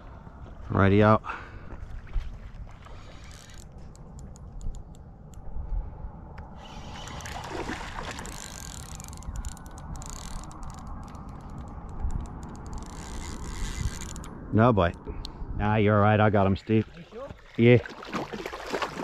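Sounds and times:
fishing reel ratcheting clicks: 0:08.2 - 0:14.3.

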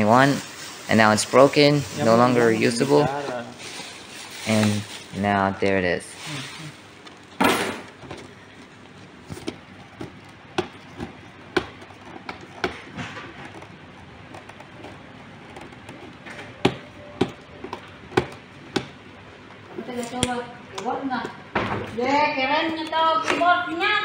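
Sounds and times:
plastic bag rustling: 0:00.0 - 0:20.1
clicks and taps on cardboard box: 0:09.3 - 0:19.0.

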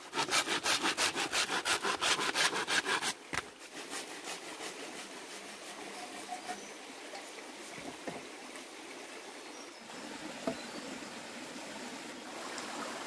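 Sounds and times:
hand saw cutting wood: 0:00.0 - 0:03.2.

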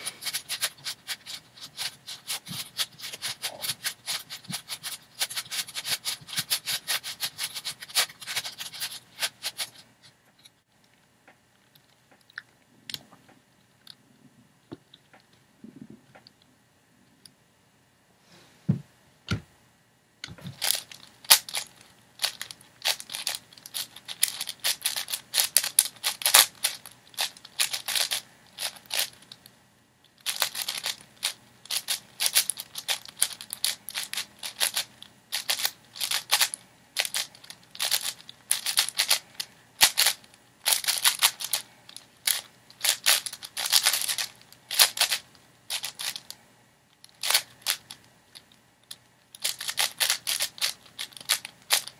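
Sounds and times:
puzzle cube clacking turns: 0:00.0 - 0:09.9, 0:20.3 - 0:29.4, 0:30.2 - 0:46.4, 0:47.0 - 0:51.9.

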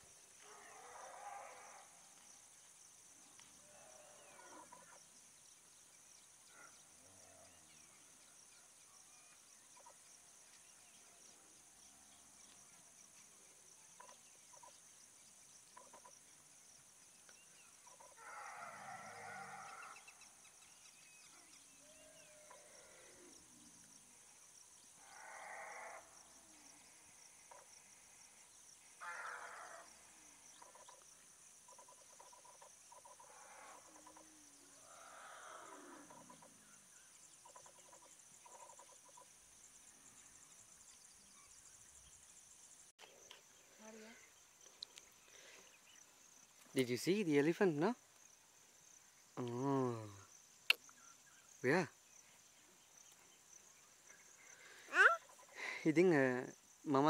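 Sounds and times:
high insect hum: 0:00.0 - 0:57.0
distant animal calls: 0:17.8 - 0:20.4, 0:21.3 - 0:23.4, 0:25.0 - 0:27.9, 0:28.9 - 0:31.0, 0:31.6 - 0:39.3, 0:54.1 - 0:55.8.

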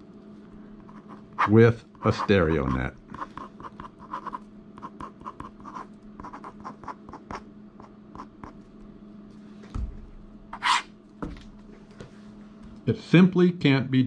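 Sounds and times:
faint steady hum: 0:00.0 - 0:14.0
pen writing on paper: 0:00.9 - 0:07.4.

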